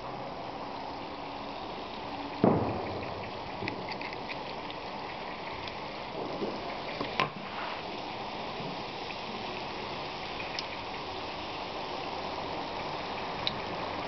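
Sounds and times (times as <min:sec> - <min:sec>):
oil sizzling in deep fryer: 0:04.5 - 0:14.0.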